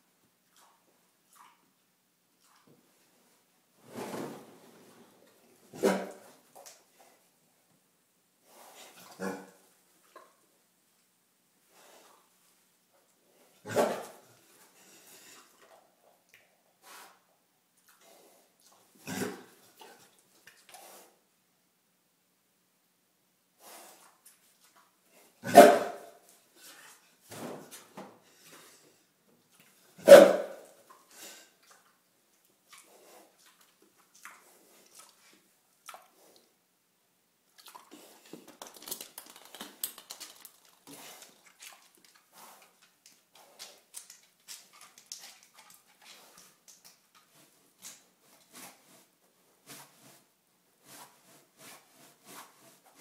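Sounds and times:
pig barking: 5.7s - 6.2s, 9.2s - 9.6s, 13.7s - 14.2s, 25.4s - 26.1s, 30.0s - 30.6s
pig grunting and sniffing: 19.0s - 20.1s.

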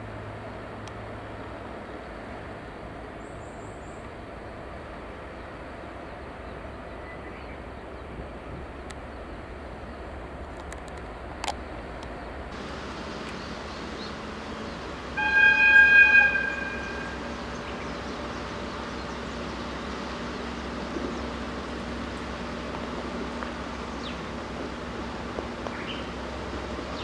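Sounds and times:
locomotive horn blast: 14.9s - 19.0s.

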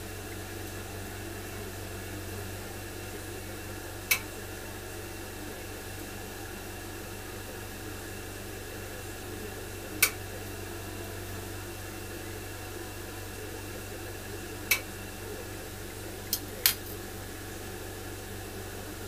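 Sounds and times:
kiln clicks: 16.2s - 17.0s.

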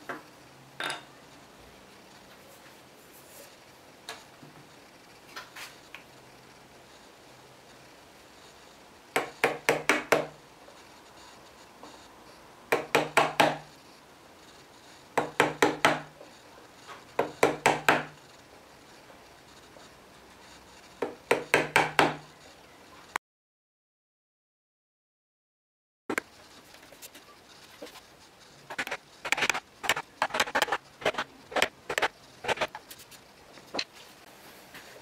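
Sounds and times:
chisel chopping into wood: 12.7s - 13.6s.

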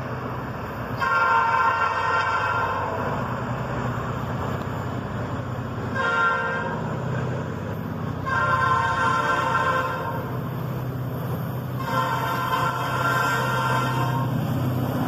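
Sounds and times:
passing train rumble: 0.0s - 15.0s
locomotive horn blasts: 1.0s - 3.0s, 5.9s - 6.9s, 8.2s - 10.3s, 11.8s - 14.4s.

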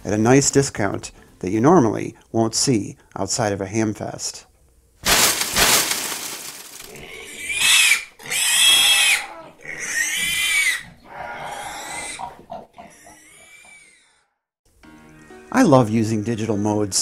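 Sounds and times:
pig squealing: 6.4s - 14.3s.

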